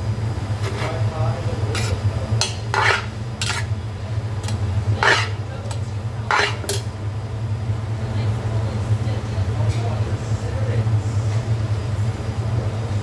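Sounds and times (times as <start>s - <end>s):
metal tongs scraping a metal pot: 1.7s - 3.8s, 4.4s - 6.9s.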